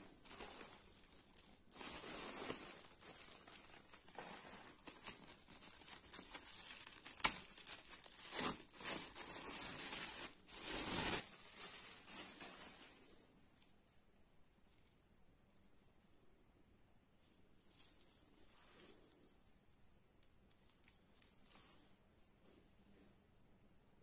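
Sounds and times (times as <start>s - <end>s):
plastic film crinkling: 0.0s - 13.1s.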